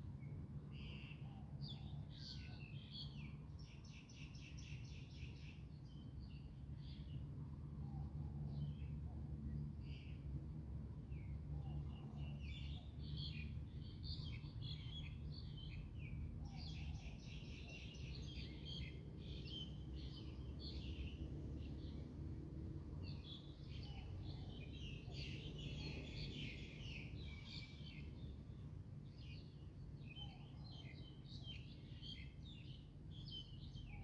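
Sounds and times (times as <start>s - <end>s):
birds chirping and twittering: 0.7s - 10.2s, 11.1s - 22.4s, 23.0s - 34.0s.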